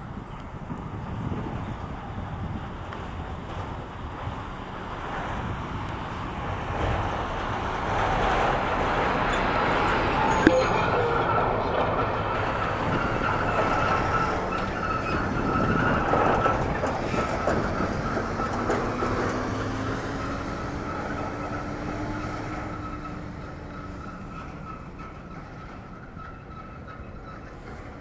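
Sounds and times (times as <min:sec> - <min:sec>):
engine drone: 0:00.0 - 0:28.0
high whine: 0:08.5 - 0:16.6.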